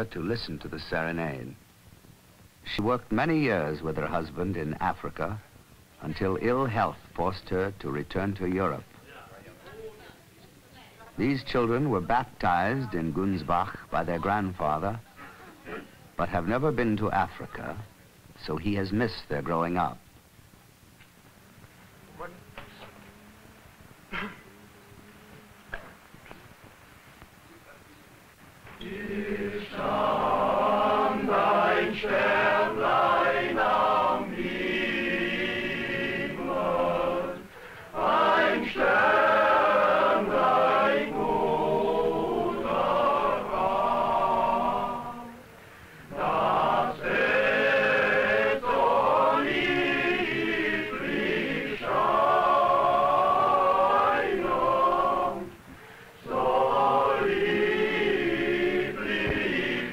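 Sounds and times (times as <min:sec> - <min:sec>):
men's choir singing unaccompanied: 0:28.6 - 0:59.9.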